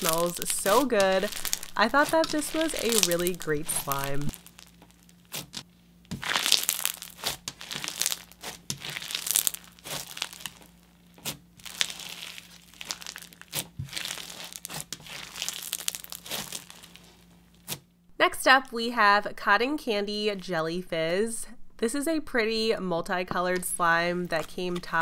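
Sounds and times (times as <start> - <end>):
slime crunchy crackling: 0.0 - 17.8.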